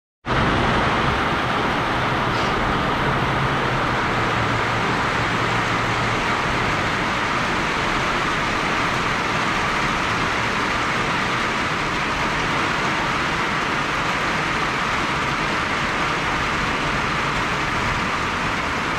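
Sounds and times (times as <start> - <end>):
rain on a panel roof: 0.2 - 18.9.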